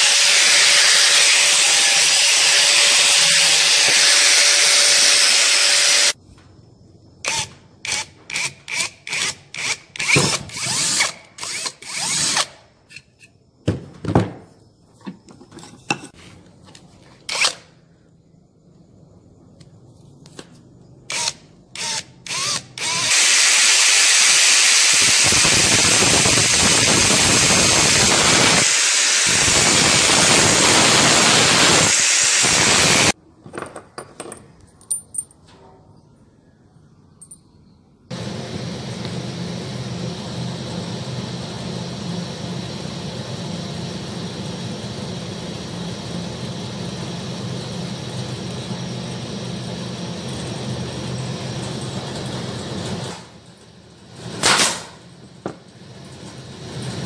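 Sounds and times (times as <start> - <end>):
power drill boring into wood: 0.0 - 6.2, 7.2 - 12.5, 21.1 - 33.2.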